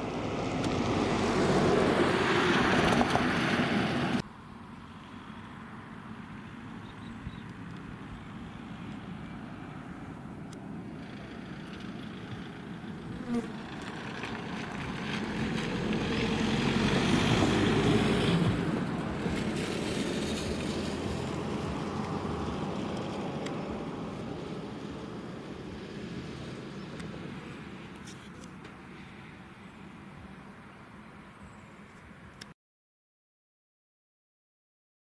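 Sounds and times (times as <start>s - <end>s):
vehicle passing by: 0.0s - 31.6s.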